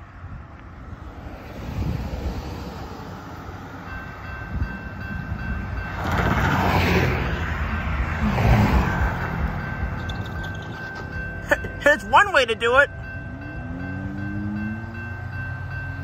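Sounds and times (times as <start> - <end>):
freight train rumble: 0.0 - 16.0
railroad crossing bell ringing: 2.9 - 8.2, 8.9 - 16.0.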